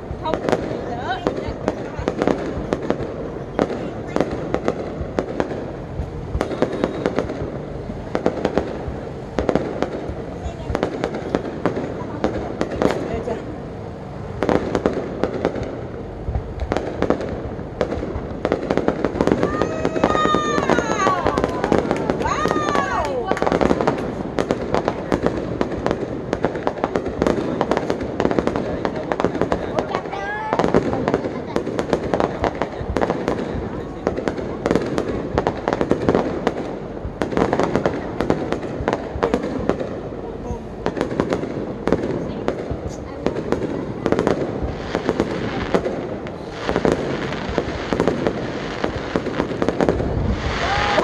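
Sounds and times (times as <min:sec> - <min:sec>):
firework bangs: 0:00.0 - 0:51.0
firework shells launching: 0:14.4 - 0:51.0.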